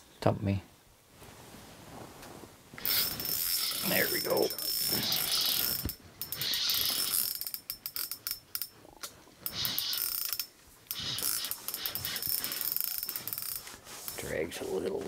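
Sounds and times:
fishing reel drag clicking and buzzing: 2.8 - 8.7, 9.4 - 13.7.

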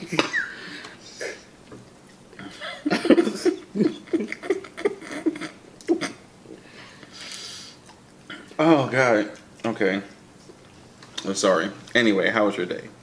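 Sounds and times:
man laughing muffled: 2.4 - 6.2
breathy exhale: 6.6 - 7.8.

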